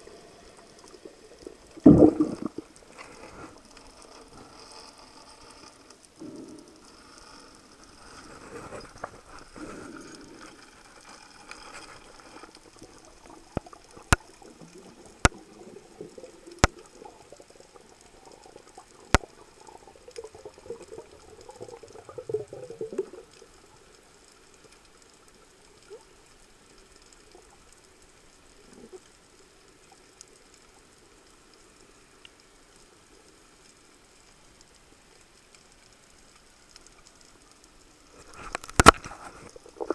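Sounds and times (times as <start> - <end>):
muffled underwater rushing: 0.0 - 4.6
faint steady hiss: 0.0 - 39.9.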